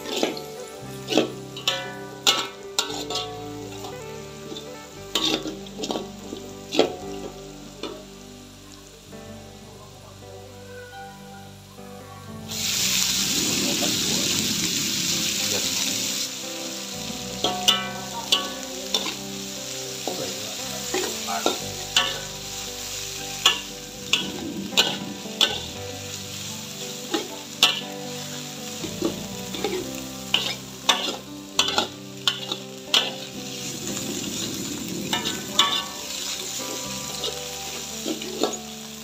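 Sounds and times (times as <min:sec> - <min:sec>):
food sizzling in a wok: 0:00.0 - 0:39.0
metal spatula clacking on pan: 0:01.1 - 0:04.0, 0:05.1 - 0:06.0, 0:17.4 - 0:19.2, 0:20.9 - 0:22.3, 0:23.4 - 0:25.8, 0:27.1 - 0:28.0, 0:29.0 - 0:33.3, 0:35.1 - 0:36.0.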